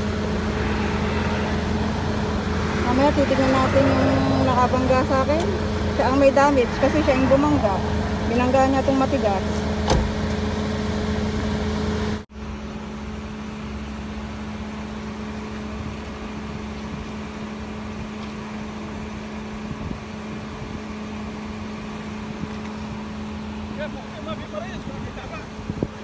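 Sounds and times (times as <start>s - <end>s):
car engine idling: 0.0s - 12.2s.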